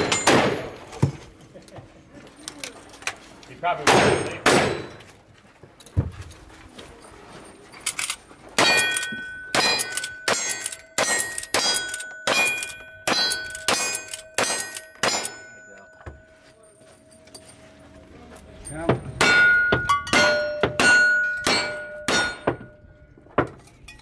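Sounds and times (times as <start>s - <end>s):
rifle shots: 0.0s - 0.8s, 3.9s - 5.0s
steel target clanging: 8.6s - 16.3s, 18.7s - 22.8s.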